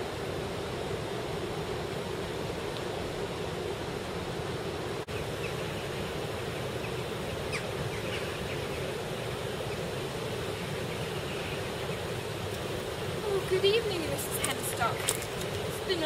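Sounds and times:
stream water rushing: 0.0s - 16.0s
faint bird chirps: 5.1s - 9.9s.

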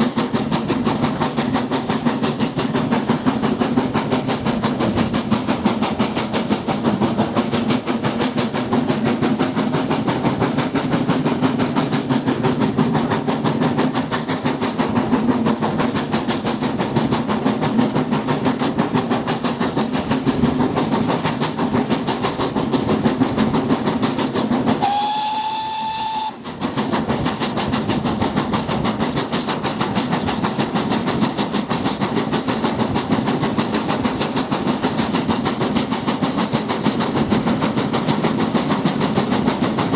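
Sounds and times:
moving train rumble: 0.0s - 39.9s
steam locomotive whistle: 24.8s - 26.5s.

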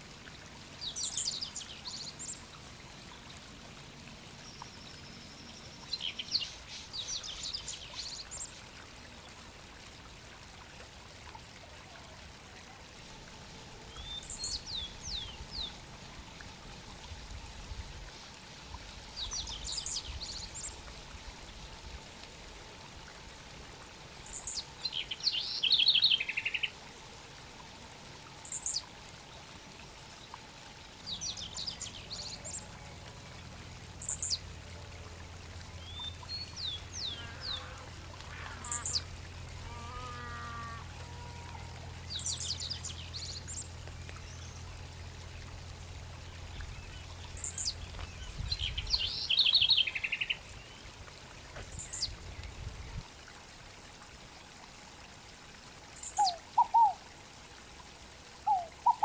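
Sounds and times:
faint steady hiss: 0.0s - 59.0s
wild birds chirping and trilling: 35.7s - 45.4s, 46.0s - 50.9s, 55.9s - 57.0s, 58.4s - 59.0s.

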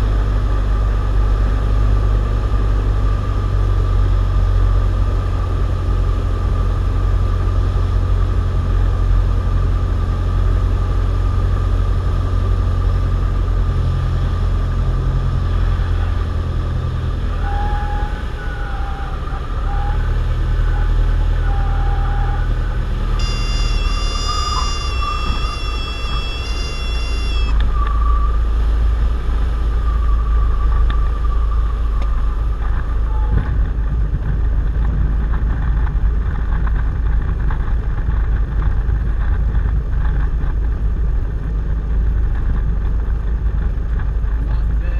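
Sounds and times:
low rumble of rollout: 0.0s - 44.9s
plane engine and propeller droning: 0.0s - 44.9s
high wavering warning horn: 23.1s - 28.5s.

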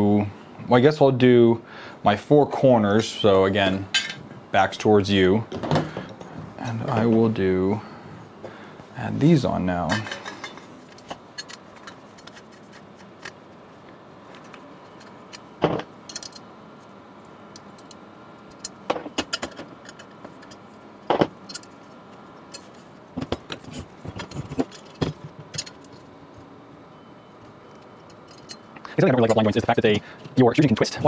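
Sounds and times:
metal parts clinking: 9.9s - 13.4s, 16.1s - 16.5s, 21.4s - 21.8s, 23.5s - 26.1s, 27.7s - 28.7s.

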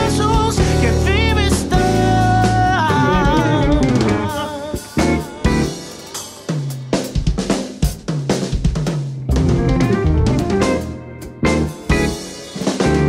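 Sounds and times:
gospel band holding a chord: 0.0s - 6.6s
drum kit fill with cymbals: 0.0s - 13.0s.

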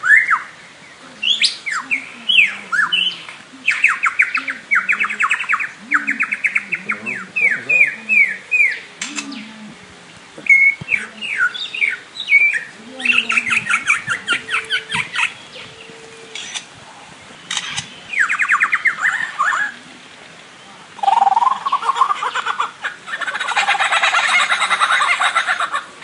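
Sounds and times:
bird sharp clicks: 9.0s - 9.4s, 16.3s - 16.7s, 17.5s - 18.4s.

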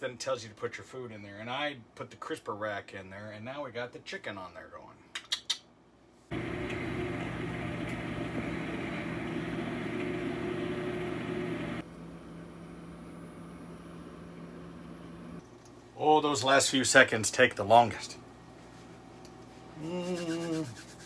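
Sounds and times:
fan air rushing: 6.3s - 11.8s
microwave humming: 6.3s - 15.5s.

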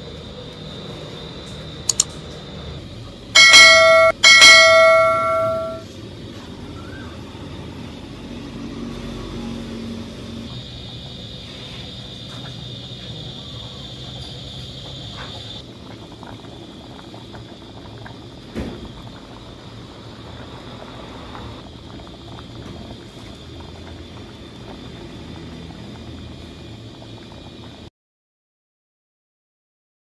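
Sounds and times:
low hum: 3.4s - 5.8s
soup bubbling in a pot: 8.0s - 27.9s.

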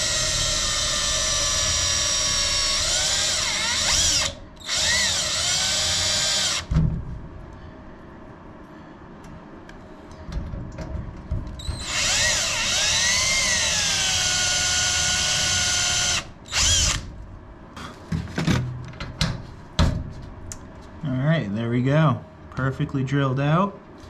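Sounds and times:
cordless drill drilling metal: 0.0s - 6.7s, 11.6s - 17.0s.

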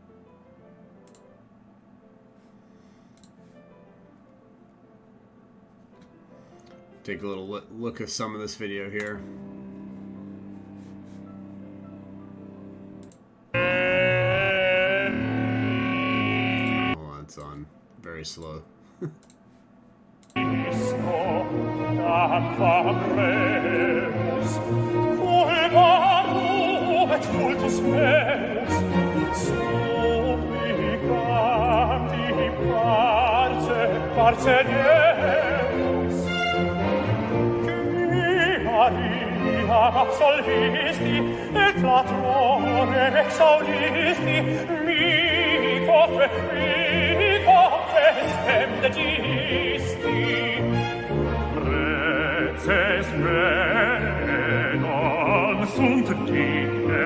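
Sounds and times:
sustained instrumental accompaniment: 5.7s - 17.0s, 20.3s - 57.0s
operatic singing: 8.2s - 17.0s, 20.3s - 57.0s.

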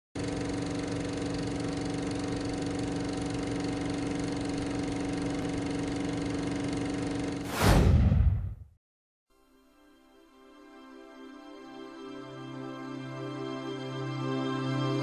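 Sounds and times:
film projector whirring: 0.2s - 7.4s.

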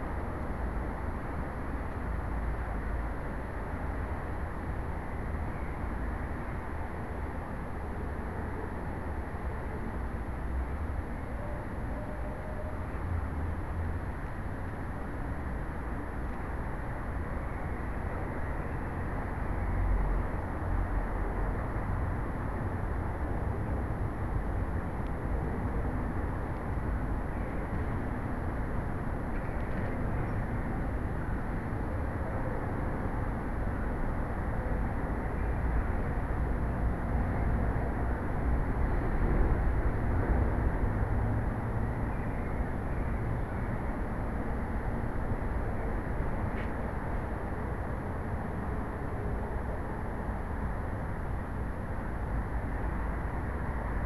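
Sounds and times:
faint high whine: 0.0s - 54.0s
steady rumbling noise: 0.0s - 54.0s.

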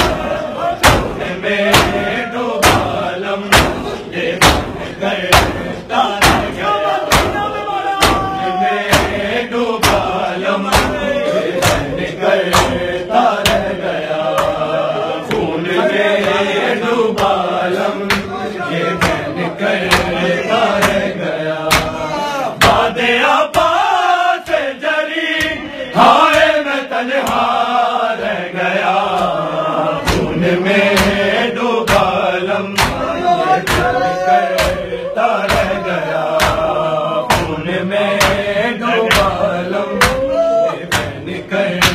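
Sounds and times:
men chanting a lament: 0.0s - 41.9s
hands slapping chests: 9.8s - 22.8s, 27.2s - 27.6s, 30.0s - 37.6s, 38.2s - 39.4s, 40.0s - 41.9s.

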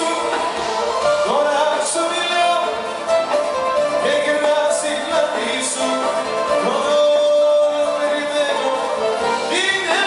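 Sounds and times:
man singing into microphone: 0.0s - 2.9s, 3.9s - 10.0s
pop band accompaniment: 0.0s - 10.0s.

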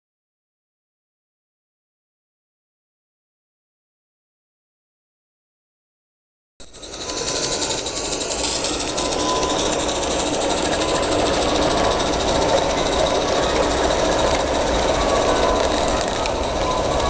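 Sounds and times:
steam locomotive hissing and ticking: 6.6s - 17.0s.

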